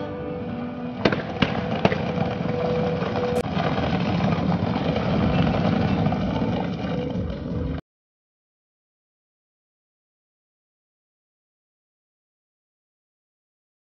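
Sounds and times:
held musical notes: 0.0 - 3.4
fireworks bangs: 0.8 - 7.8
rumbling roar: 1.2 - 7.8.

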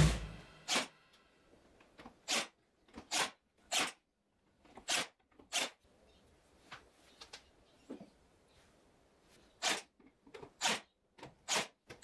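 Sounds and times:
nail gun firing into plywood: 0.0 - 0.9.

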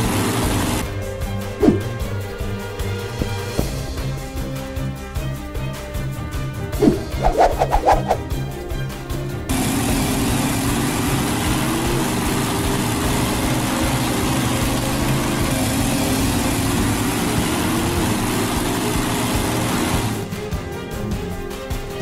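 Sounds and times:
machine motor hiss and hum: 0.0 - 0.8.

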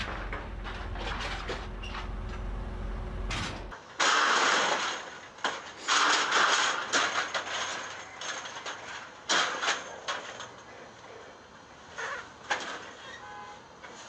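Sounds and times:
steel trailer decks clattering: 0.0 - 10.6.

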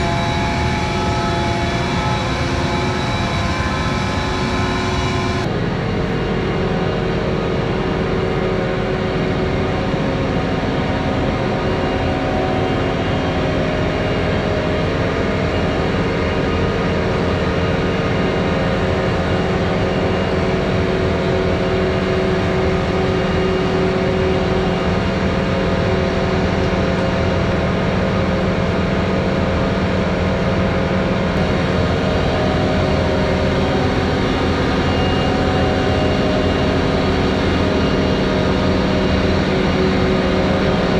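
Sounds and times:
combine diesel engine running: 19.1 - 40.9.

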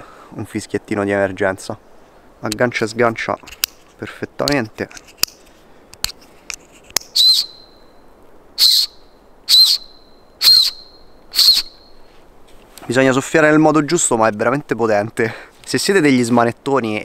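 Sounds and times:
shrill whistle blasts: 7.1 - 7.8, 8.6 - 12.0.

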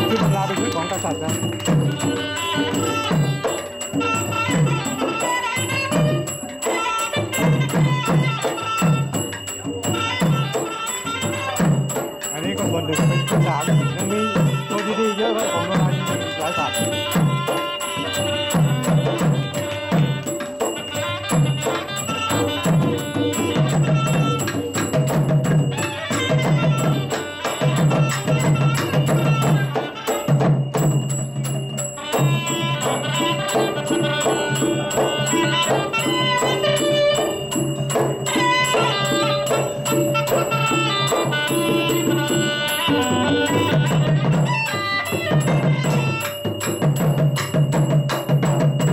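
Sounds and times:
hand drums driving beat: 0.0 - 48.9
held melodic line: 9.9 - 46.6.

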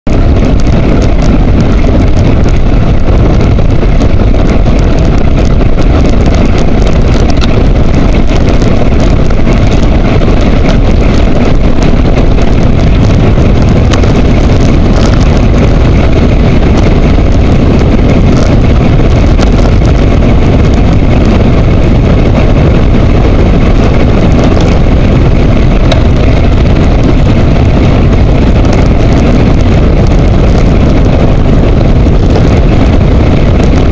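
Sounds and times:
wind buffeting microphone: 0.0 - 33.9
tyre noise on asphalt: 0.1 - 33.9
bike clicks and rattles: 0.2 - 21.5.

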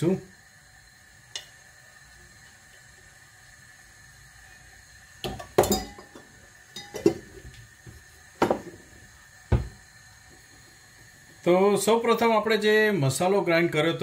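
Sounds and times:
spoon and dishes clinking: 5.4 - 6.2, 6.8 - 7.2.

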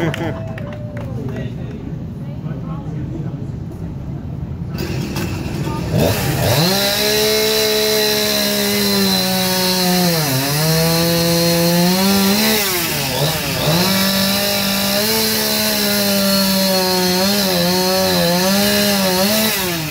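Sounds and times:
chainsaw cutting wood: 4.7 - 19.9.

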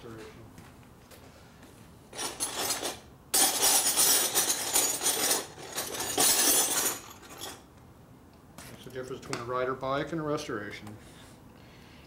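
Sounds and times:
small metal parts clinking: 2.1 - 7.6.

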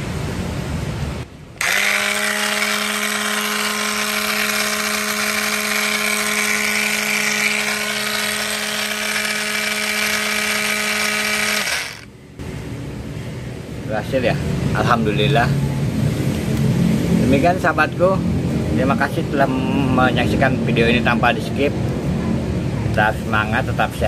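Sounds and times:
angle grinder whine: 1.6 - 12.1.

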